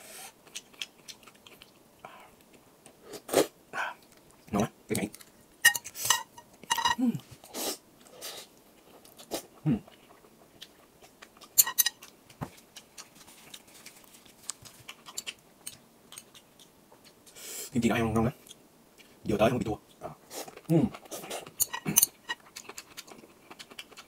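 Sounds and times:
chewing noodles: 0.4s - 1.8s, 8.8s - 17.2s, 20.3s - 24.0s.

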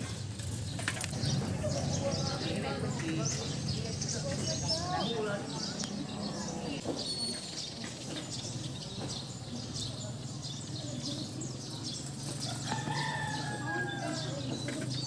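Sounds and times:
small birds chirping: 0.0s - 15.0s
rooster crowing: 12.4s - 14.4s.

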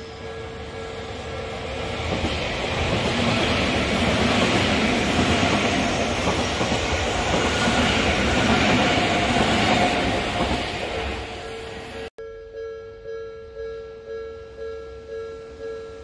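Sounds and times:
electric train passing: 0.0s - 12.1s
train wheels rumbling on rails: 0.0s - 12.1s.

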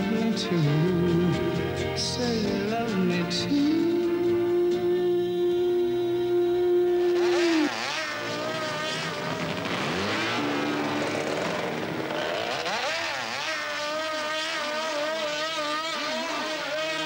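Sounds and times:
motorcycle engines revving: 0.0s - 17.0s.

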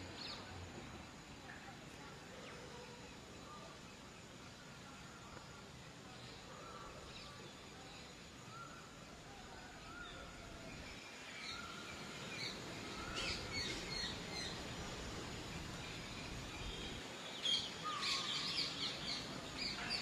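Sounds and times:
outdoor background hiss: 0.0s - 20.0s
small birds chirping: 0.0s - 20.0s.

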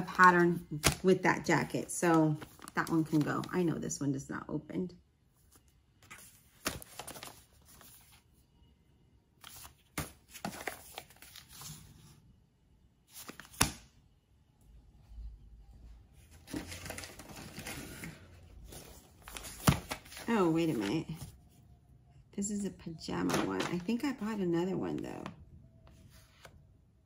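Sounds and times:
paper rustling and crinkling: 1.9s - 3.7s, 5.4s - 8.2s, 9.4s - 12.1s, 13.1s - 13.7s, 16.2s - 21.4s.

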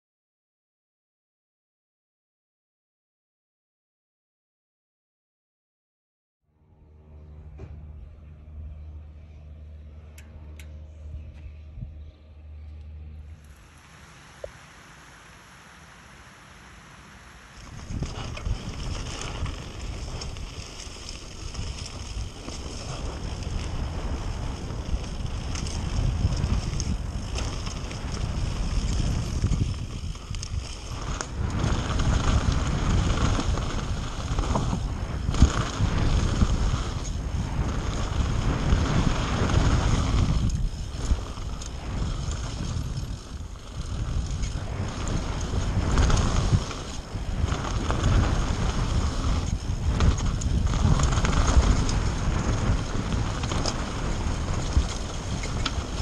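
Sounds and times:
tyres on loose gravel: 13.4s - 56.0s
bike rattling: 17.0s - 56.0s
wind on microphone: 17.2s - 56.0s.

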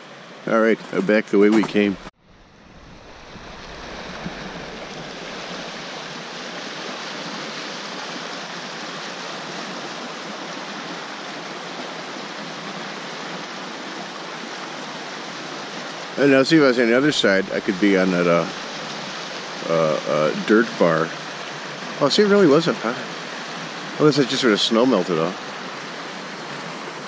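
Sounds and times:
creek rushing: 0.0s - 27.0s.

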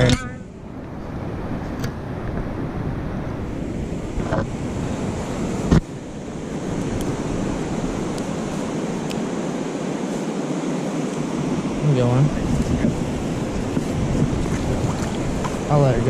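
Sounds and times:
sharp thump: 0.0s - 0.4s
running river water: 0.0s - 16.0s
wind on microphone: 0.0s - 16.0s.

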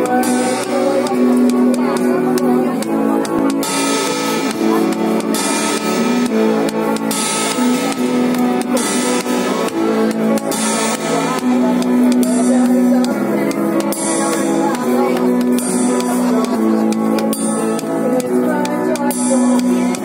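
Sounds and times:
loud music: 0.0s - 20.0s
ride cymbal struck with drumstick: 3.5s - 13.2s.

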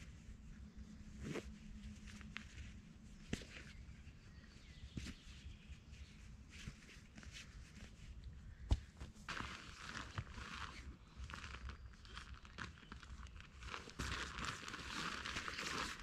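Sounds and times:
stuff sack rustling: 9.0s - 16.0s.

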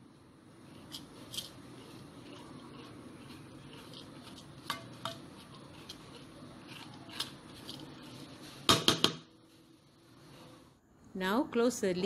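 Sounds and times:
spoon scraping in pot: 0.6s - 8.7s
spoon knocking on pot: 8.7s - 9.3s.

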